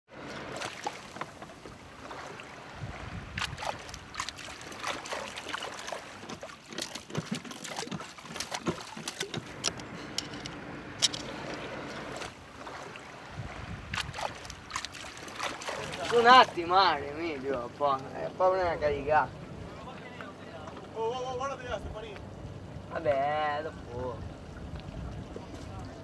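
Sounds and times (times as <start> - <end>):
water lapping and sloshing: 0.1 - 26.0
small irregular clicks and knocks: 6.2 - 11.6.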